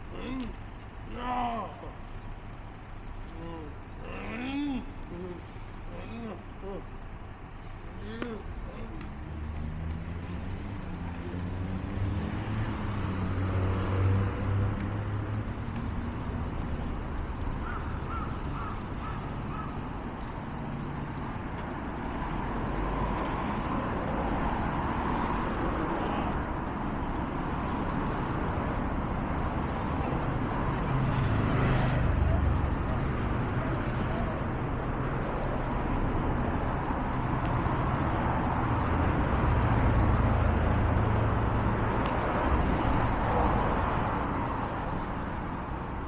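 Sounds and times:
city traffic passing: 0:00.0 - 0:46.0
crow cawing: 0:17.6 - 0:19.9.

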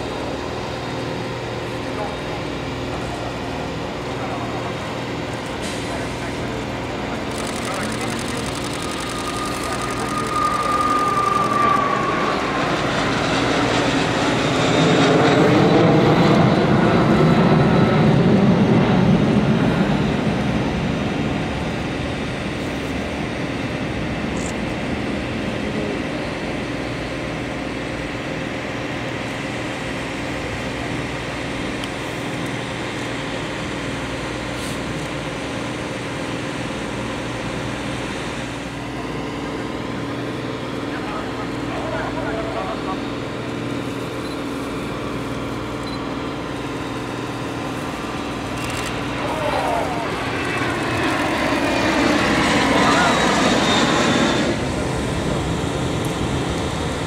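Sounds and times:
jet flying past overhead: 0:05.8 - 0:27.1, 0:36.0 - 0:57.0.

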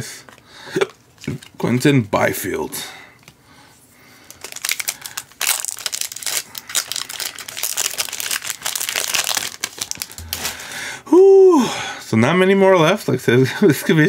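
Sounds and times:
foil wrapper crinkling and tearing: 0:04.2 - 0:10.8.

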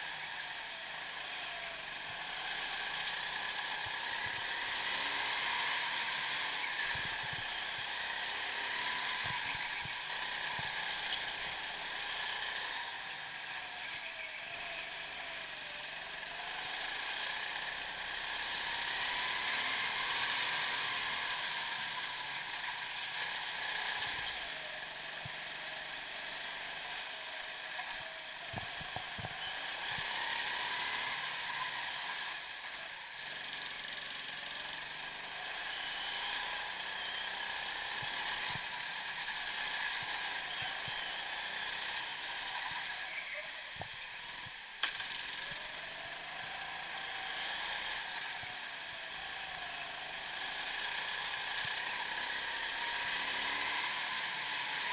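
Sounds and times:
go-kart motor revving: 0:00.0 - 0:54.9.

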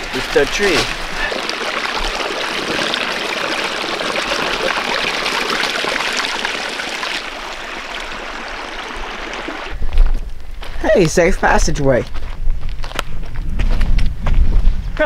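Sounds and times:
creek trickling over rocks: 0:00.0 - 0:10.2.

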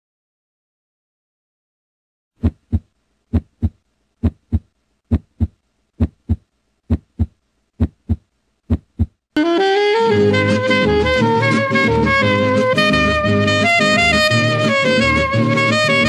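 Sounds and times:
heartbeat thumps: 0:02.4 - 0:09.2
jazz music with saxophone: 0:09.4 - 0:16.0.

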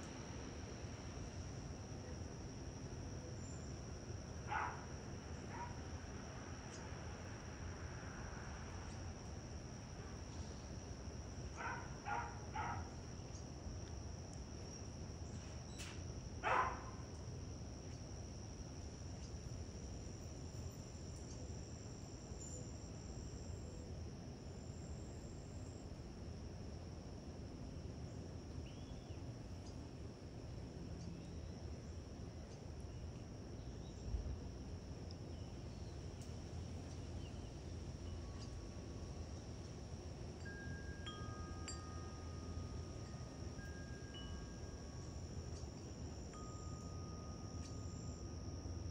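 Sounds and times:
high-pitched insect trill: 0:00.0 - 0:48.9.

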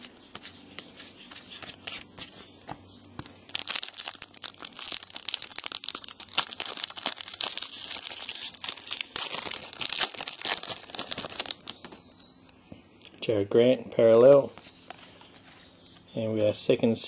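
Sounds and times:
wrapper tearing and crinkling: 0:03.5 - 0:12.0.

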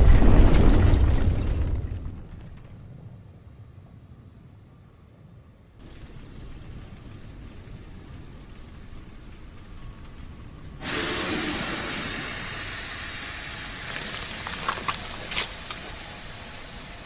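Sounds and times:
rushing hiss of steam: 0:10.6 - 0:17.0
sharp crackles and snaps: 0:13.8 - 0:16.3.

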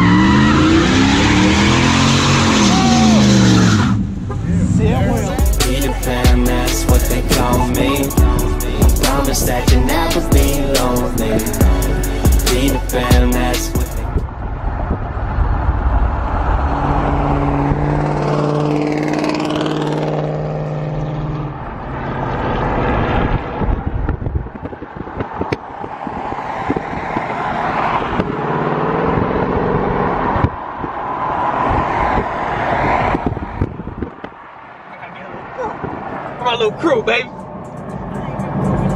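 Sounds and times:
car engine accelerating past: 0:00.0 - 0:06.2, 0:14.1 - 0:24.0
wind and tyre noise: 0:00.0 - 0:38.9.

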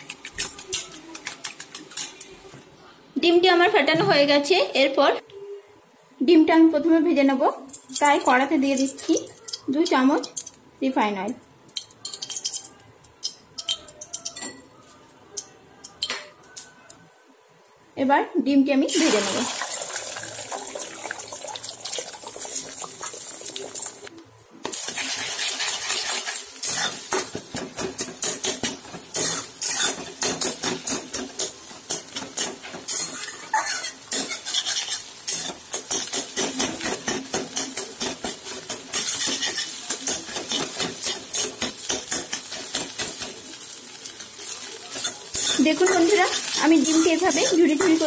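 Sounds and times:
eggs sizzling in hot oil: 0:18.9 - 0:48.0
spatula scraping a pan: 0:24.9 - 0:43.3, 0:44.9 - 0:48.0.

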